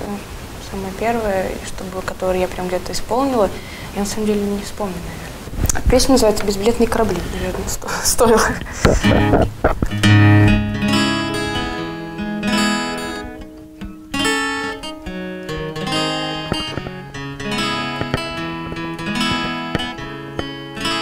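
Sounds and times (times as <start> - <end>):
acoustic guitar chords: 8.8 - 21.0.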